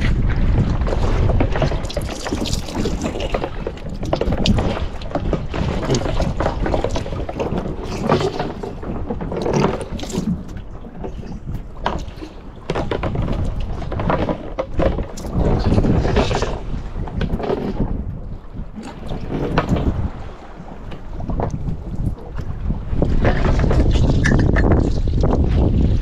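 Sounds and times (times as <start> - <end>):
knocks and slaps on hull: 0.0 - 20.2
water splashing against boat hull: 0.0 - 26.0
wind buffeting microphone: 0.0 - 26.0.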